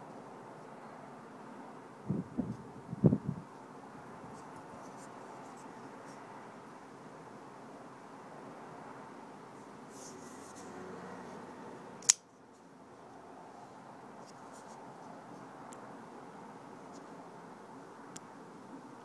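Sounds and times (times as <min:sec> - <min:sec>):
knife blade locking snap: 0:12.0 - 0:12.2.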